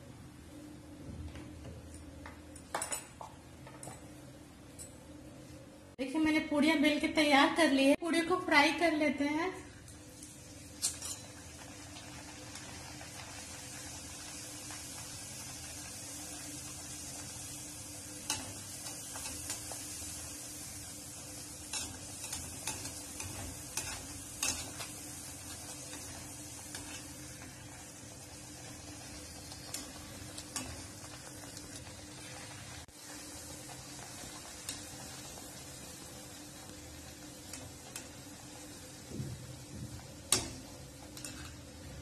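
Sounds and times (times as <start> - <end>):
dough deep-frying in hot oil: 8.5 - 42.0.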